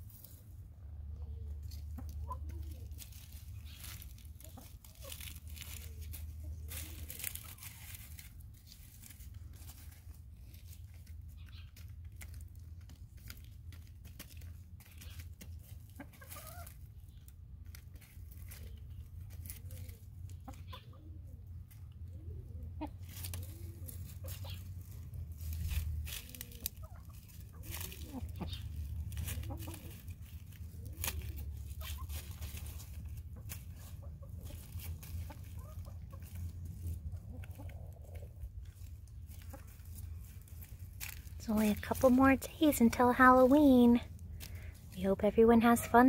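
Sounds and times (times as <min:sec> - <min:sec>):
hens clucking softly: 0:01.0 - 0:08.3, 0:17.9 - 0:25.0, 0:25.7 - 0:40.7
beaks tapping food and ground: 0:01.6 - 0:45.0.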